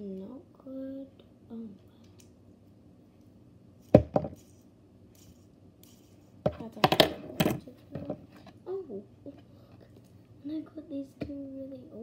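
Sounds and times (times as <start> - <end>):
small hard objects knocking: 3.9 - 4.5.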